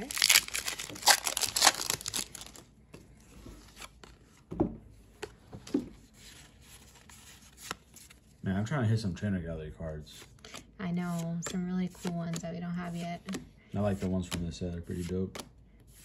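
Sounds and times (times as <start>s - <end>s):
foil wrapper crinkling and tearing: 0.0s - 2.7s
cards clicking and rustling: 0.0s - 3.0s, 10.2s - 15.6s.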